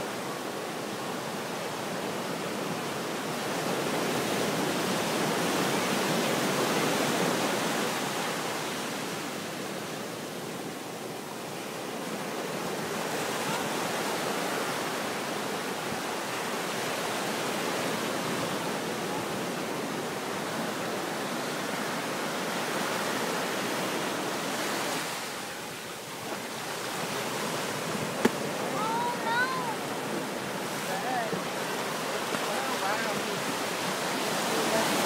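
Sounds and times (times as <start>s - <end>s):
surf breaking on beach: 11.8s - 35.0s.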